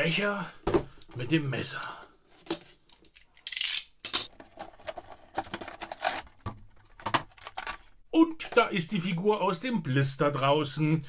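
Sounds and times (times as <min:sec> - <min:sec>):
plastic and cardboard crinkling: 0:04.3 - 0:08.5.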